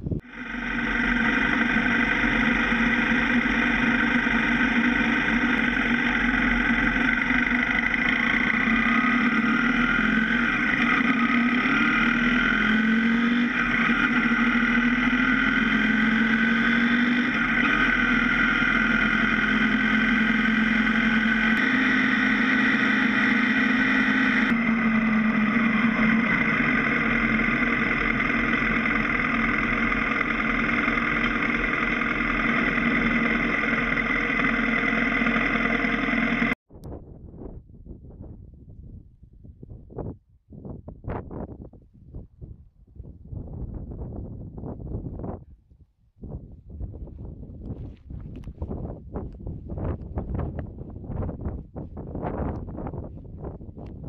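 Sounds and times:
motorcycle engine droning: 0.0 - 36.6.

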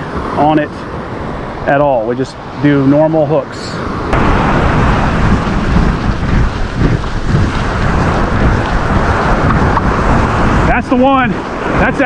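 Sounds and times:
wind buffeting microphone: 3.8 - 12.0.

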